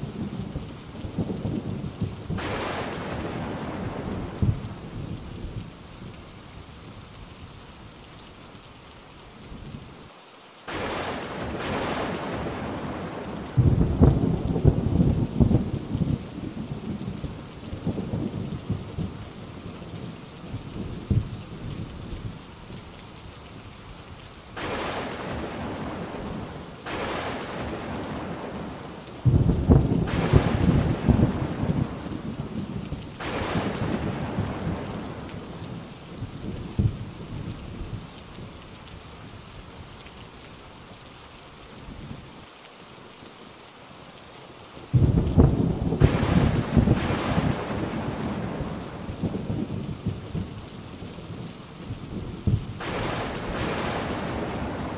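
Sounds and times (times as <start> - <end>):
heavy rain: 0.0 - 54.9
rolling thunder: 10.7 - 19.2, 24.6 - 38.0, 44.9 - 50.5, 52.2 - 54.9.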